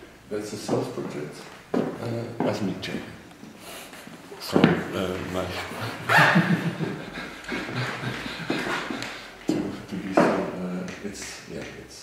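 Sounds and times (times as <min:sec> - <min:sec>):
men laughing: 0:04.9 - 0:10.1.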